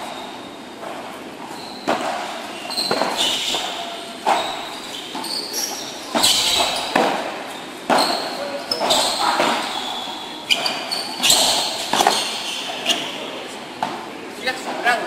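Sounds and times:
shoes squeaking: 0.0s - 15.0s
ball hit by paddles: 6.1s - 9.7s, 11.3s - 12.3s.

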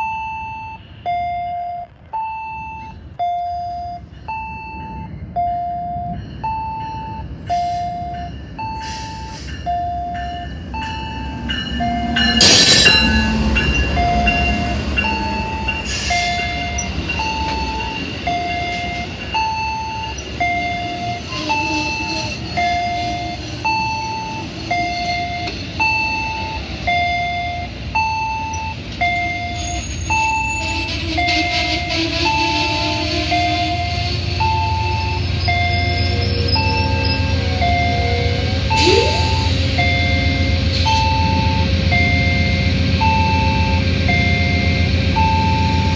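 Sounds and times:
two-tone electronic warning tone: 0.0s - 45.9s
train horn: 21.2s - 23.4s, 30.5s - 34.7s.

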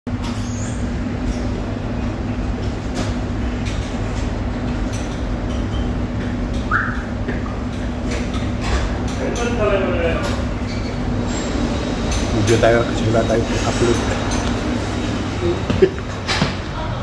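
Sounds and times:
machinery drone: 9.7s - 17.0s.

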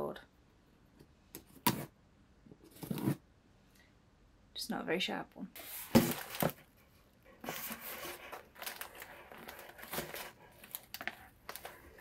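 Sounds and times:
plastic packaging crinkling: 7.4s - 12.0s.

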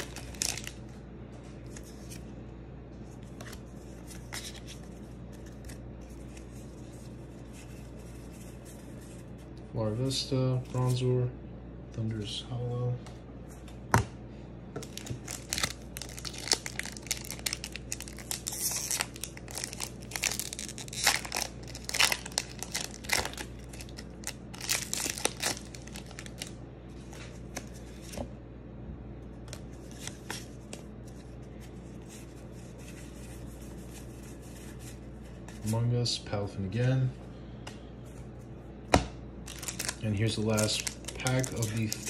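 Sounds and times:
foil wrapper crinkling and tearing: 0.0s - 0.8s, 14.8s - 26.6s, 39.4s - 42.0s.

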